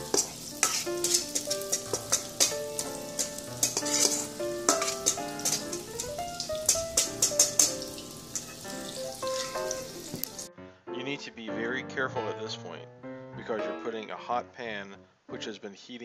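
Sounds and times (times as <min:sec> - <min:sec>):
batter sizzling in hot oil: 0:00.0 - 0:10.5
music: 0:00.0 - 0:16.0
spoon scraping a metal bowl: 0:00.1 - 0:08.6, 0:09.2 - 0:09.6.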